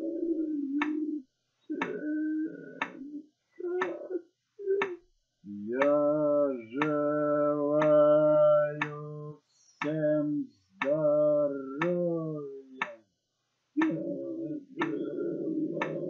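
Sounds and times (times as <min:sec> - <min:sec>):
person humming long notes: 0:00.0 - 0:13.0, 0:13.8 - 0:16.0
sharp ticks: 0:05.8 - 0:06.2, 0:06.8 - 0:08.1, 0:08.8 - 0:09.1, 0:10.8 - 0:11.1, 0:11.8 - 0:12.1, 0:13.8 - 0:14.0, 0:14.8 - 0:15.1, 0:15.8 - 0:16.0.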